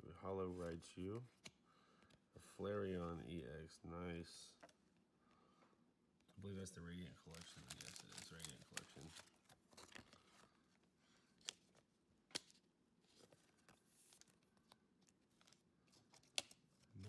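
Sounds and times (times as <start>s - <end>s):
card sleeve rustling: 7.2s - 17.0s.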